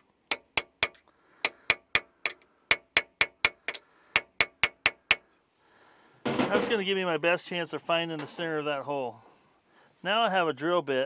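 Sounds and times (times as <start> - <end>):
hammer tapping metal punch: 0.0 - 5.2.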